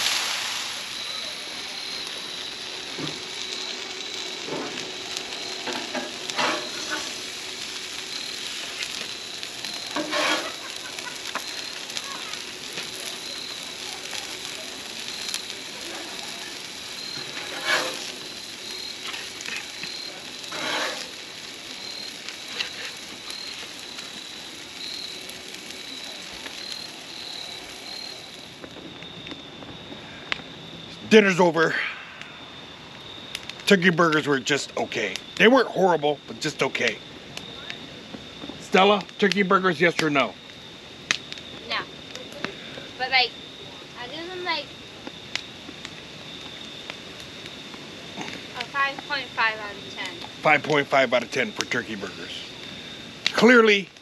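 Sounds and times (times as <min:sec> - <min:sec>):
burgers sizzling on griddle: 0:00.0 - 0:54.0
metal spatula scraping steel: 0:10.0 - 0:10.6, 0:17.3 - 0:18.0, 0:20.5 - 0:21.1.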